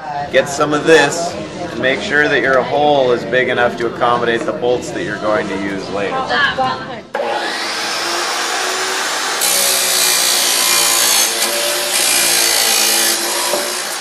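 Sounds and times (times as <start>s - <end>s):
chop saw motor whining: 7.2s - 14.0s
saw wheel grinding metal: 7.2s - 14.0s.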